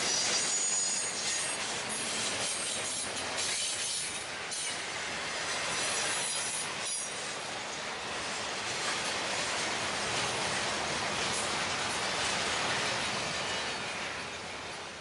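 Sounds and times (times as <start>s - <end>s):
train wheels rumbling on rail: 0.0s - 15.0s
high-pitched wheel squeal: 0.1s - 1.6s.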